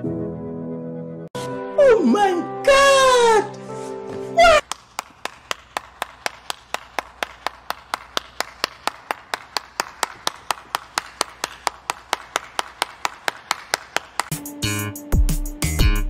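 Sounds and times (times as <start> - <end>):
person clapping: 4.4 - 14.6.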